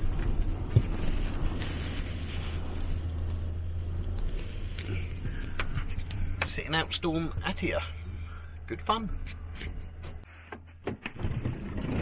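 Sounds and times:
rain on a van: 0:00.0 - 0:06.5
storm wind: 0:00.0 - 0:08.7.

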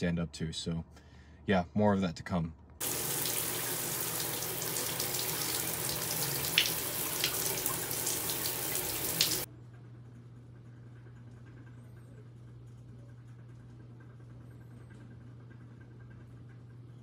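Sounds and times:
faint low hum: 0:02.5 - 0:17.0
tap water running into bathtub: 0:02.8 - 0:09.5.

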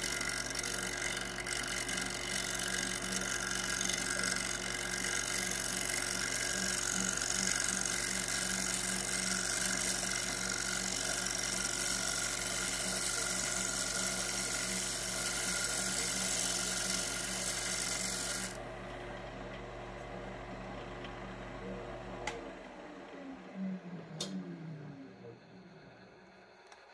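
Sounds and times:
tool scraping spinning wood: 0:00.0 - 0:18.6
lathe motor humming: 0:00.0 - 0:26.9.

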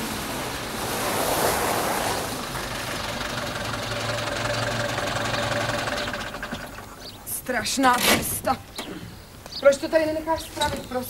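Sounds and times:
car engine running at low speed: 0:02.3 - 0:07.2.

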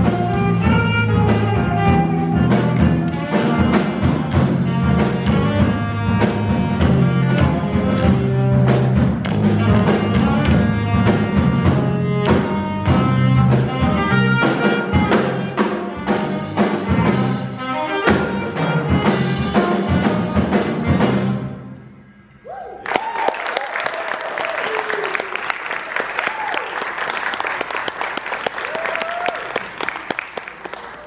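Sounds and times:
electric bass line: 0:00.0 - 0:21.8
saxophone melody: 0:00.0 - 0:21.9
drum kit and cymbals: 0:00.0 - 0:22.3.

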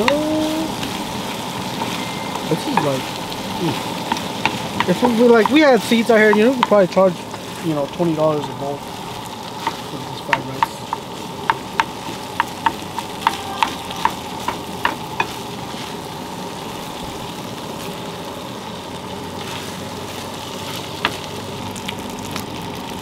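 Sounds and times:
food sizzling in a frying pan: 0:00.0 - 0:23.0
wooden spoon knocking against pan: 0:04.0 - 0:07.5, 0:09.6 - 0:15.4.

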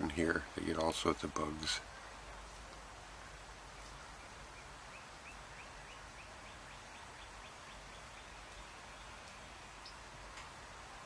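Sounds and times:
outdoor background hiss: 0:00.0 - 0:11.0
small bird chirping: 0:03.6 - 0:10.1.

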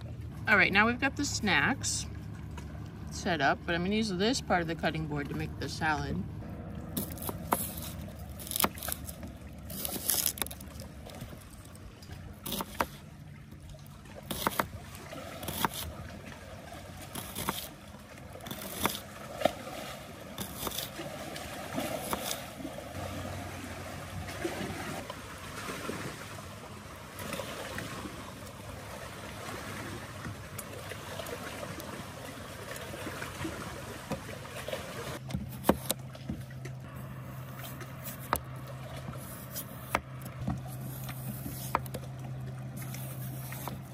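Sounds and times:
shallot slices rustling: 0:07.0 - 0:10.8.

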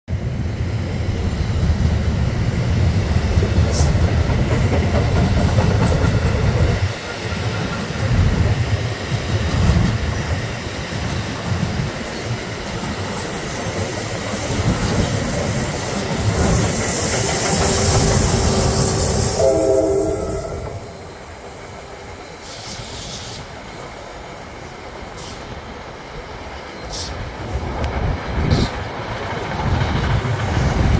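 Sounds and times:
train wheels rumbling over rails: 0:00.1 - 0:30.9
hiss: 0:02.9 - 0:27.6
train horn blast: 0:18.8 - 0:21.1.

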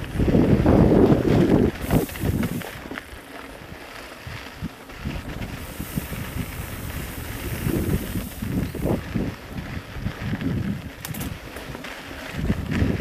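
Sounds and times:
wind buffeting microphone: 0:00.0 - 0:13.0
faint hiss: 0:01.8 - 0:02.9, 0:05.5 - 0:09.0.

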